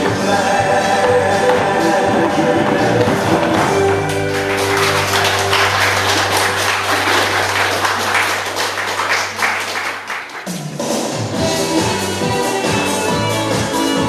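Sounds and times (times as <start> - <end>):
line-dance music: 0.0 - 14.0
people clapping: 2.6 - 11.2.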